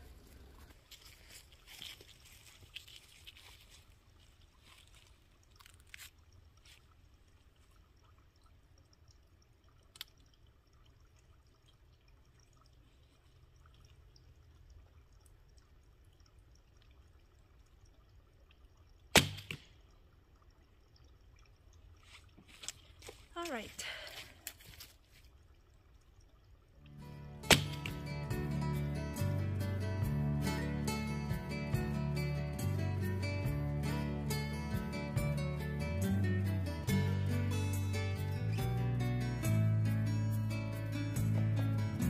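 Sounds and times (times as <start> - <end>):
arrow knock on target: 19.2 - 19.7, 27.5 - 28.0
bow string snap: 19.2 - 19.8, 27.4 - 28.7
low steady rumble: 25.4 - 42.0.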